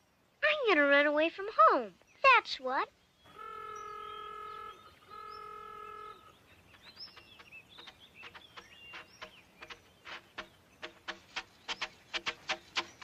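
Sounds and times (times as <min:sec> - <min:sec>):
birds chirping: 0:00.0 - 0:13.0
truck horn honking: 0:03.3 - 0:06.4.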